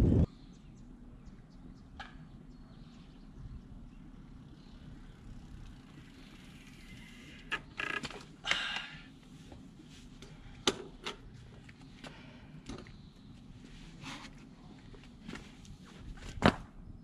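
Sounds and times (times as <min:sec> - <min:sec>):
clicks and knocks of bike handling: 0:07.5 - 0:08.9, 0:10.2 - 0:11.3, 0:12.6 - 0:13.0.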